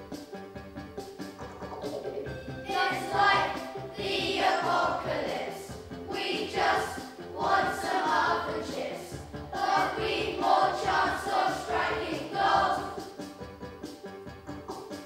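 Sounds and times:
musical accompaniment: 0.0s - 15.0s
children singing together: 2.6s - 13.2s.

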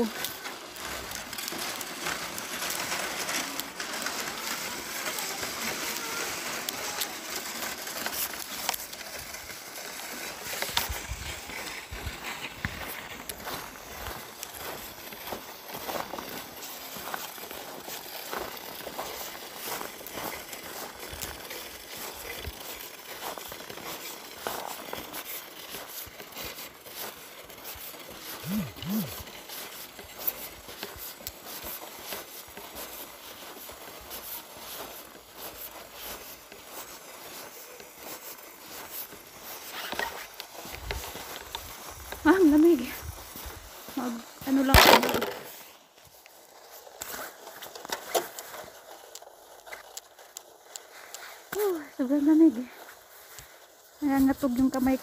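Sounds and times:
footsteps crunching on snow: 0.0s - 55.0s
rustling: 0.0s - 55.0s
faint voices: 3.3s - 7.3s, 28.4s - 29.2s
short low hums: 28.4s - 29.2s.

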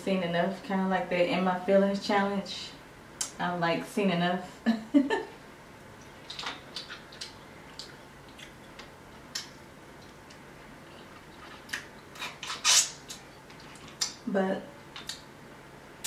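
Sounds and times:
person eating with mouth clicks: 6.0s - 12.4s, 13.0s - 14.2s.

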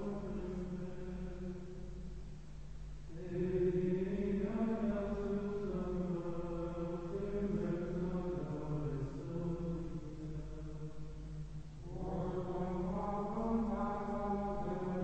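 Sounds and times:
men chanting in unison: 3.1s - 11.0s, 11.8s - 15.0s.

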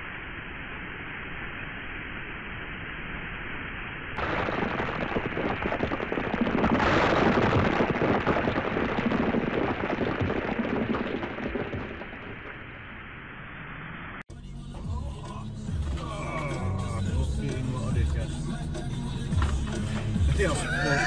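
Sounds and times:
rocks crashing down a slope: 4.2s - 12.8s.

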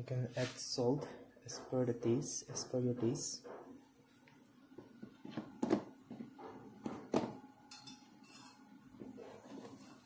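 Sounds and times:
kitchen utensils knocking and clinking: 5.3s - 8.7s.

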